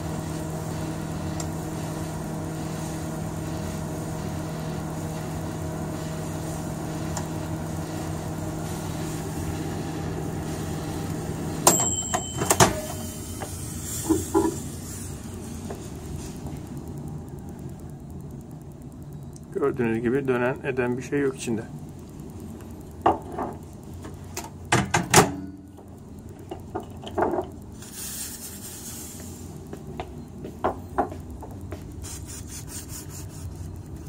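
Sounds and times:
microwave oven humming: 0:00.0 - 0:34.0
microwave clunk: 0:11.6 - 0:13.1, 0:24.7 - 0:25.6
microwave ding: 0:11.6 - 0:14.5, 0:24.7 - 0:25.8.

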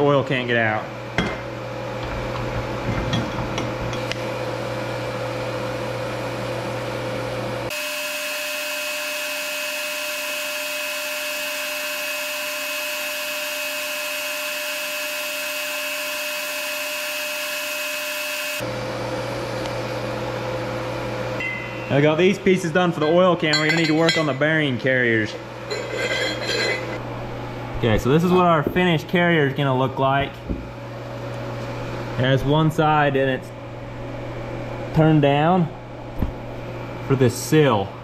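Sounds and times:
low hum: 0:20.9 - 0:37.3
metal clinks: 0:23.4 - 0:24.4, 0:25.7 - 0:27.0.

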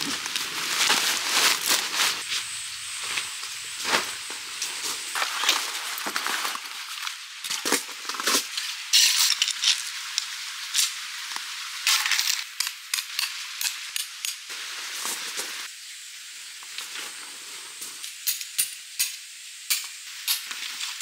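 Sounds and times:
crunching on gravel: 0:00.0 - 0:08.6.

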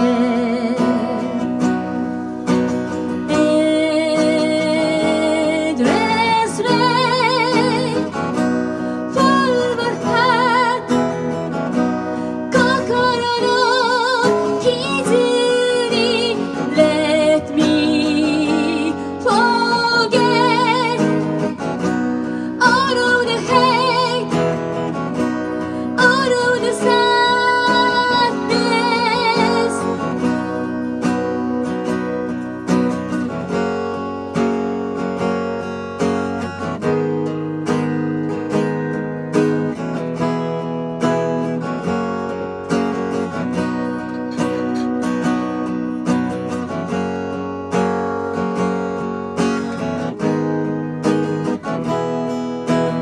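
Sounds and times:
woman singing with vibrato: 0:00.0 - 0:02.0, 0:03.1 - 0:31.8
acoustic guitar strumming: 0:00.0 - 0:53.0.

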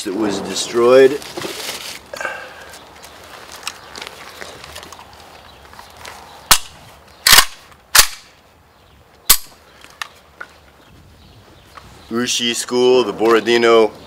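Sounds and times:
rifle action clacks: 0:06.5 - 0:08.3.

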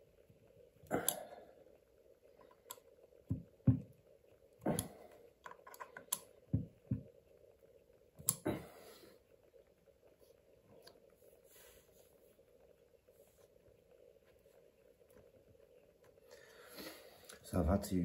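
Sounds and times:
faint steady hum: 0:00.0 - 0:18.0
small parts clicking and knocking: 0:02.4 - 0:07.5.

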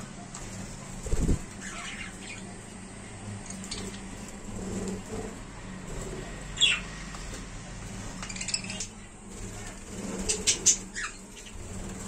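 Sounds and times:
budgerigars chirping: 0:01.6 - 0:02.5, 0:06.6 - 0:07.0, 0:08.1 - 0:09.1, 0:10.2 - 0:11.7.

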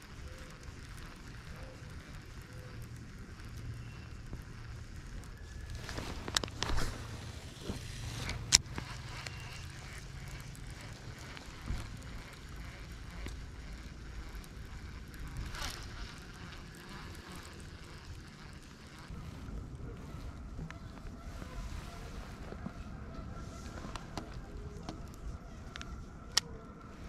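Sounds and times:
wind rumble on microphone: 0:18.9 - 0:27.0.

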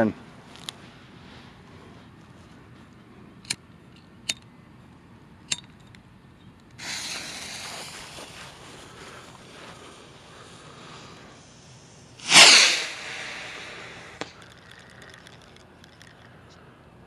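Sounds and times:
fuse hissing: 0:06.8 - 0:08.6, 0:10.6 - 0:14.4.

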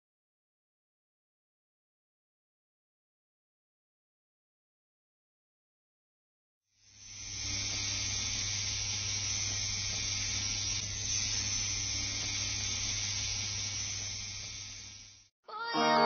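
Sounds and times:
tattoo machine humming: 0:06.8 - 0:15.3.

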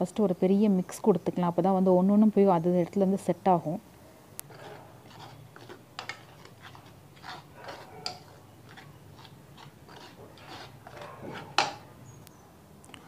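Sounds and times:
plastic spoon stirring flour: 0:04.4 - 0:11.9.

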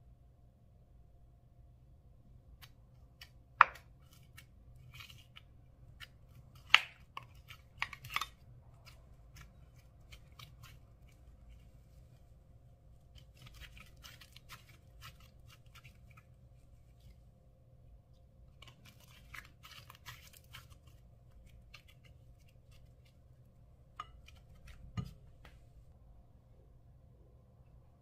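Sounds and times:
slime crackles: 0:13.0 - 0:17.2, 0:18.5 - 0:23.4.

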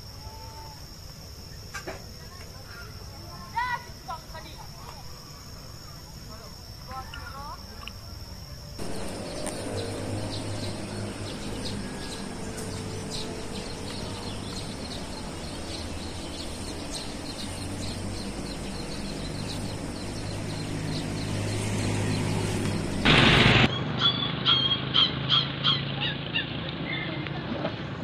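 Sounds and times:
small birds chirping: 0:01.4 - 0:27.2
low hum: 0:08.8 - 0:23.8.

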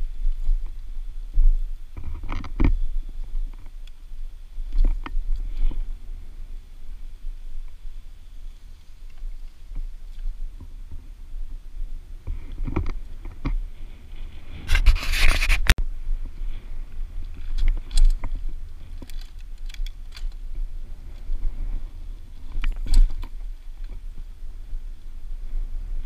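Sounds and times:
tyre noise on paving: 0:00.0 - 0:26.0
wind rumble on microphone: 0:00.0 - 0:26.0
loud scraping burst: 0:14.6 - 0:15.7
bike clicks and rattles: 0:17.1 - 0:24.3.

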